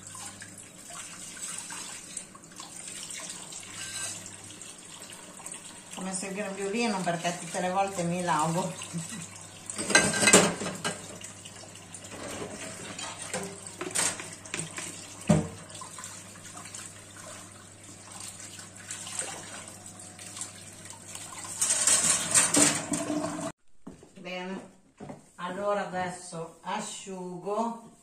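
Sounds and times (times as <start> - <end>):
tap water running into sink: 0.0 - 23.5
dishes clinking: 9.8 - 11.1.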